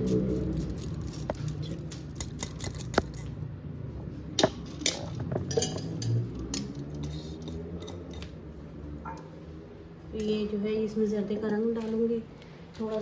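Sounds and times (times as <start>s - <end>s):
metal strainer clinking against pot: 4.8s - 8.3s.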